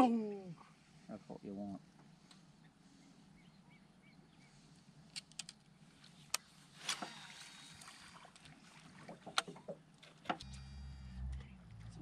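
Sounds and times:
fishing gear clicks and knocks: 5.1 - 7.3, 9.1 - 10.5
low steady hum: 10.4 - 12.0.

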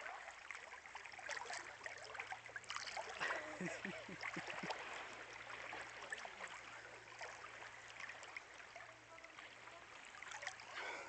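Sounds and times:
sea water lapping: 0.0 - 11.0
small splashes and drips: 0.0 - 11.0.

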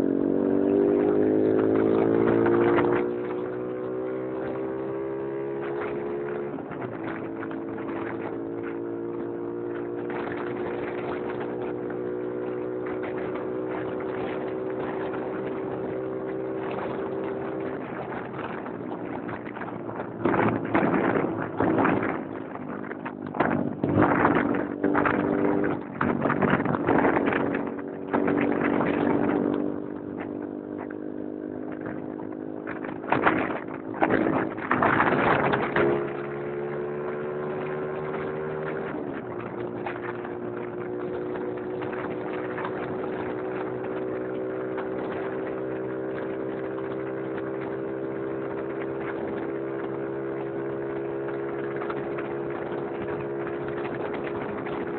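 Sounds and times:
motorcycle engine running: 0.0 - 54.9
wind buffeting microphone: 0.0 - 54.9.

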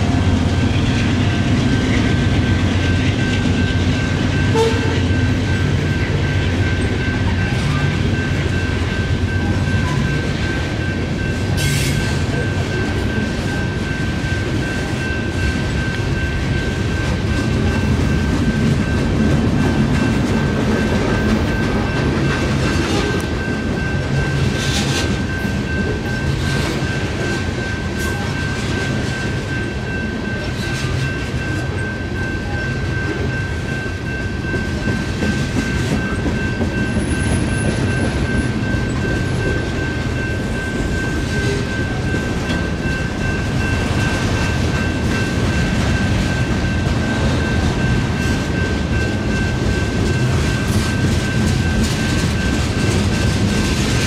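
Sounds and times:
crossing bell ringing: 0.0 - 54.0
freight train rumbling: 0.0 - 54.0
train wheel clacks: 0.0 - 54.0.

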